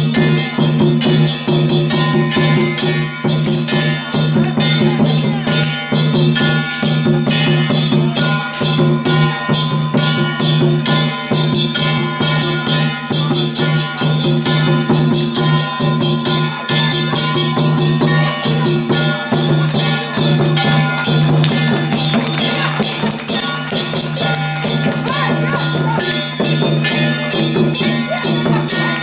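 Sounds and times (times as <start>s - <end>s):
drum and metal percussion: 0.0s - 29.0s.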